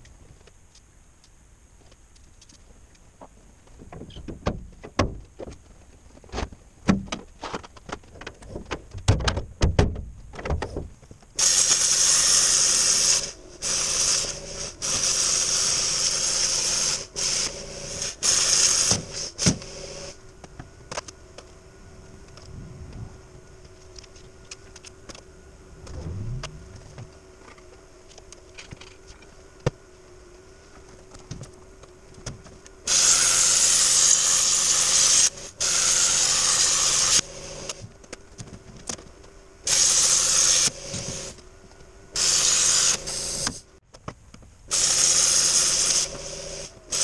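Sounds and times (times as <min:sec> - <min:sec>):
faint steady hum: 0:00.0 - 0:47.0
plasma cutter hissing: 0:11.4 - 0:20.2, 0:32.9 - 0:37.8, 0:39.7 - 0:41.4, 0:42.2 - 0:43.6, 0:44.7 - 0:47.0.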